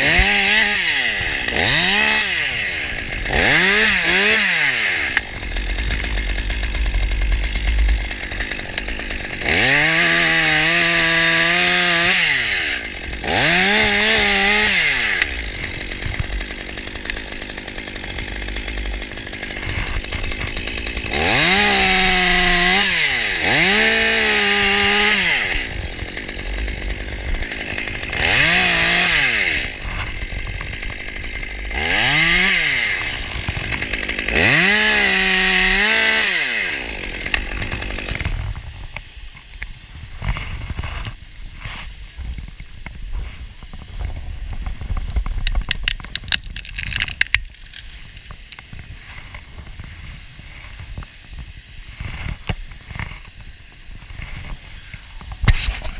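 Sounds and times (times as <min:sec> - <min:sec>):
chainsaw revving: 0:00.0 - 0:39.5, 0:45.4 - 0:55.9
rustling: 0:45.3 - 0:51.0.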